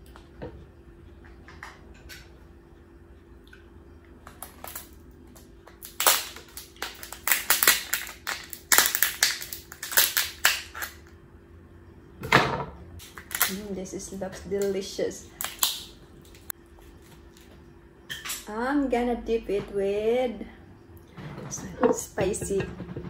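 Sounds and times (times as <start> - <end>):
scissors cracking through shell: 5.8 - 11.0.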